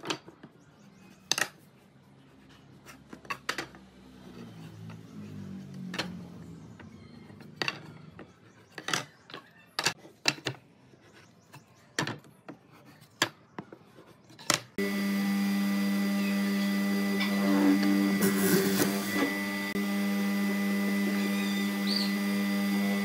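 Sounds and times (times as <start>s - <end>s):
drill press humming: 14.8s - 23.0s.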